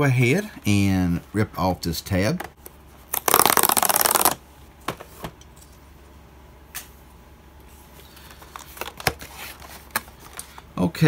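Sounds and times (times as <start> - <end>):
cardboard tear strip ripping: 3.1 - 4.4.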